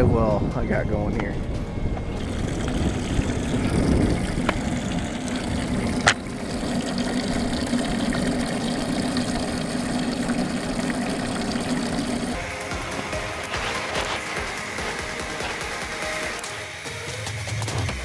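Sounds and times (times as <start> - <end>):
pump humming: 1.9 - 18.0
water splashing: 2.2 - 16.5.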